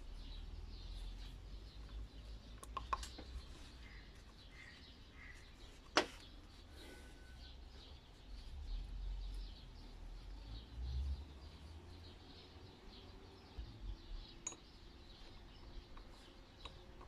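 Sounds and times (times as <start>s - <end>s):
small clicks of pump parts: 1.9s - 4.7s, 15.6s - 17.0s
faint high chirps: 6.8s - 8.6s.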